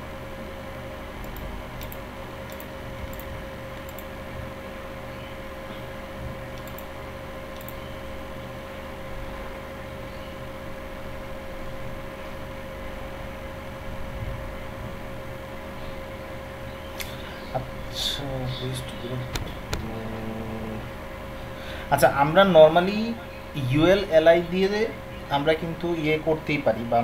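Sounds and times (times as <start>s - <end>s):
background hum with pitched tone: 0.0s - 27.0s
computer mouse clicks: 1.2s - 4.1s, 6.5s - 6.9s, 7.5s - 7.8s.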